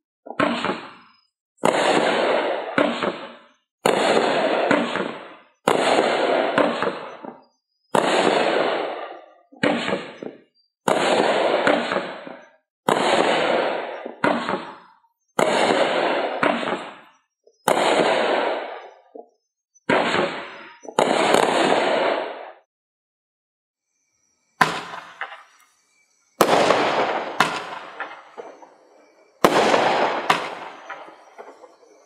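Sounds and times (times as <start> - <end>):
firework cake bangs: 0.3 - 22.6, 24.6 - 32.0.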